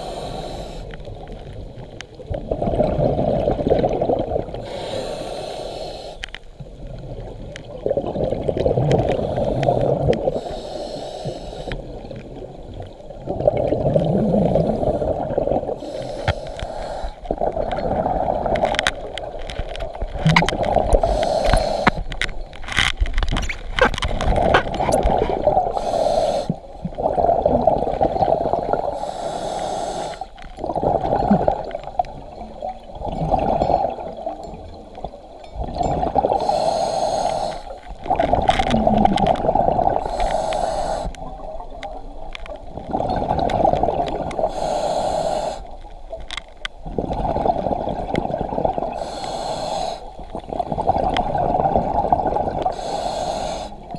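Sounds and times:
regulator inhales: 0:00.0 - 0:01.0, 0:04.6 - 0:06.3, 0:09.2 - 0:11.8, 0:15.8 - 0:17.2, 0:21.0 - 0:22.0, 0:25.7 - 0:26.6, 0:29.0 - 0:30.4, 0:36.4 - 0:37.8, 0:40.0 - 0:41.2, 0:44.5 - 0:45.7, 0:49.0 - 0:50.2, 0:52.7 - 0:53.9
exhaled bubbles rumbling: 0:01.0 - 0:04.7, 0:06.5 - 0:10.4, 0:11.8 - 0:15.8, 0:17.2 - 0:25.8, 0:26.5 - 0:29.0, 0:30.4 - 0:36.5, 0:37.8 - 0:44.5, 0:45.7 - 0:49.0, 0:50.2 - 0:52.8.

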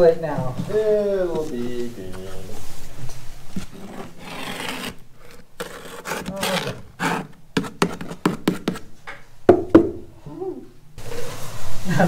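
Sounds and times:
plastic cup knocking and scraping: 0:03.5 - 0:08.9.

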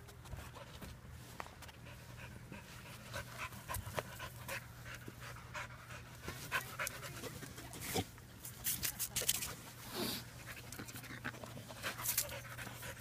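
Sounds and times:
puppy panting: 0:01.6 - 0:07.5, 0:10.3 - 0:13.0.

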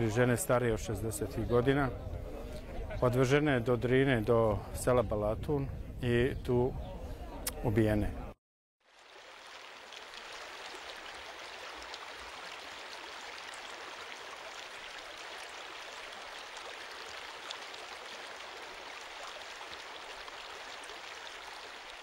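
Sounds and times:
river water rushing: 0:08.9 - 0:22.0.

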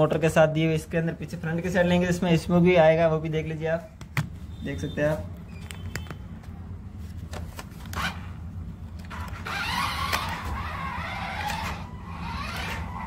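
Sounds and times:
electric motors whining: 0:09.0 - 0:13.0.

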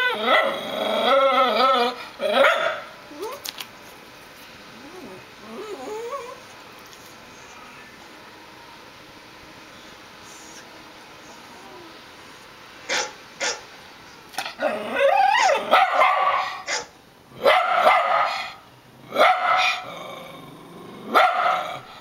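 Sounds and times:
dog howling: 0:00.0 - 0:03.4, 0:04.8 - 0:06.4, 0:14.6 - 0:16.9
dog barking: 0:02.4 - 0:02.9, 0:12.9 - 0:13.7, 0:15.4 - 0:19.9, 0:21.1 - 0:21.8.

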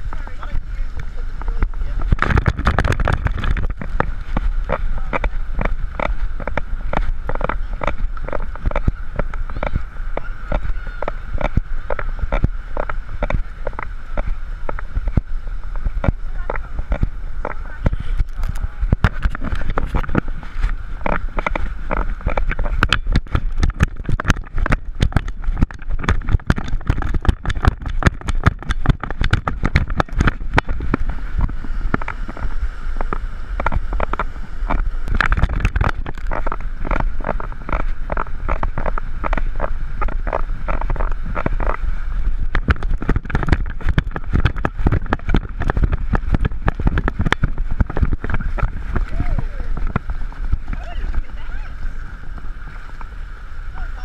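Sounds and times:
feet splashing through shallow water: 0:00.0 - 0:54.0
wind buffeting microphone: 0:00.0 - 0:54.0
camera handling knocks and rubbing: 0:02.1 - 0:15.3, 0:19.0 - 0:41.8, 0:42.5 - 0:49.1.

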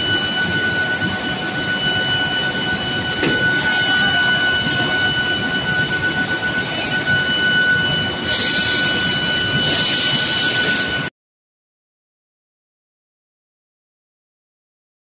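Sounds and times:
induction furnace high-pitched whine: 0:00.0 - 0:11.1
loud hiss: 0:08.2 - 0:10.9.

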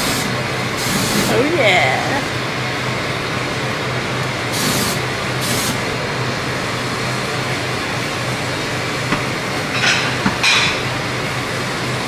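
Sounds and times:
aerosol can hissing bursts: 0:00.0 - 0:01.5, 0:04.5 - 0:05.8
grill flames flaring: 0:00.0 - 0:12.0
steady kitchen roar: 0:00.0 - 0:12.0.

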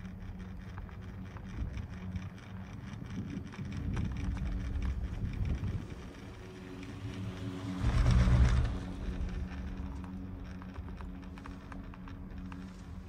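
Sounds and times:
gondola cabin low hum: 0:00.0 - 0:13.0
low rush: 0:04.4 - 0:11.2.

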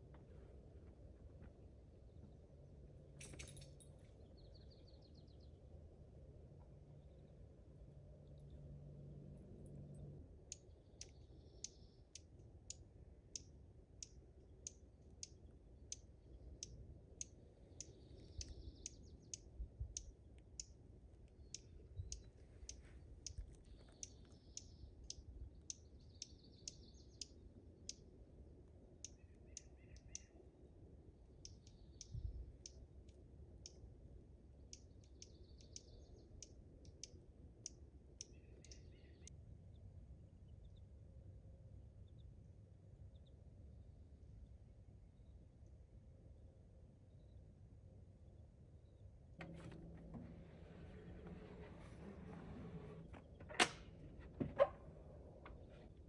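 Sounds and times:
low outdoor rumble: 0:00.0 - 0:56.0
faint steady clicking: 0:09.4 - 0:39.4.

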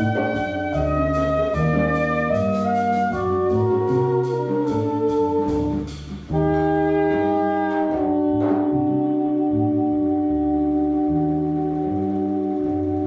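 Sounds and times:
drum cymbals: 0:00.0 - 0:08.7
double bass: 0:00.0 - 0:13.0
saxophones holding long notes: 0:00.0 - 0:13.0.

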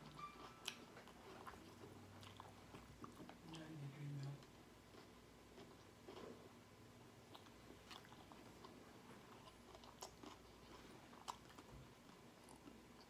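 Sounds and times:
faint chewing: 0:00.0 - 0:06.6, 0:07.2 - 0:13.0.

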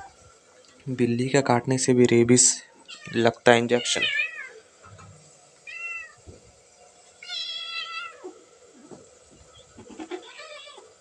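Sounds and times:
cat whining cries: 0:05.6 - 0:06.2, 0:07.2 - 0:11.0
cats fighting: 0:07.2 - 0:11.0.

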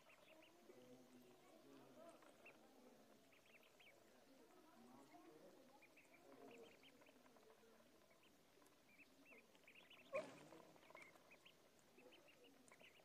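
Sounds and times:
ducklings peeping: 0:02.1 - 0:04.1, 0:05.7 - 0:13.0.

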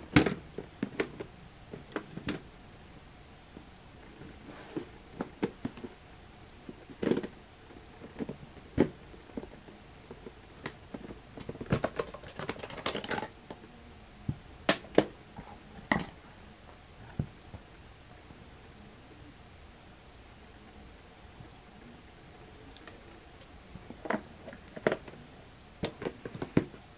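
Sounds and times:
plastic cases clicking and knocking: 0:00.1 - 0:02.4, 0:10.6 - 0:13.4, 0:25.8 - 0:26.8
small plastic rattles: 0:06.6 - 0:13.6.

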